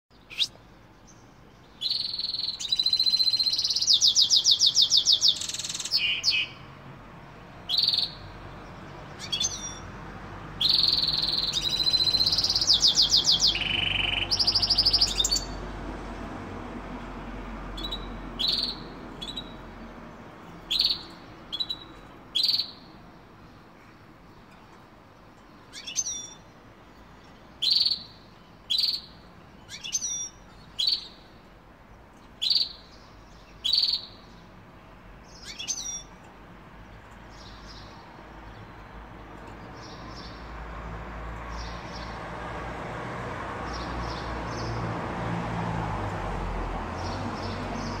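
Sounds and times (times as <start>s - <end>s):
bird chirping: 0.1s - 15.7s, 17.7s - 42.2s, 46.9s - 48.0s.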